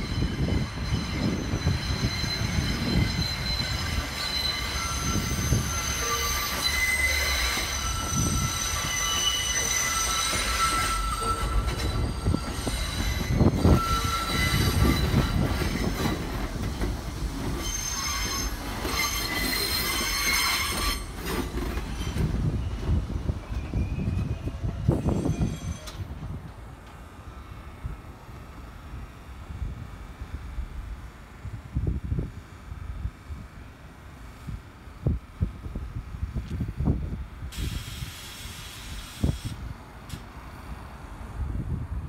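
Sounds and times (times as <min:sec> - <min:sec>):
high-pitched wheel squeals: 0:00.0 - 0:26.0
train wheels rumbling on rails: 0:00.0 - 0:42.0.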